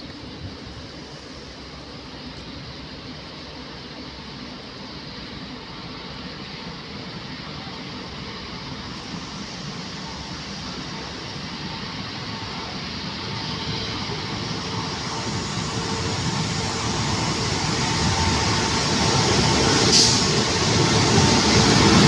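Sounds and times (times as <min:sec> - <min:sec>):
diesel locomotive approaching: 0:00.0 - 0:22.0
short hiss: 0:19.9 - 0:20.4.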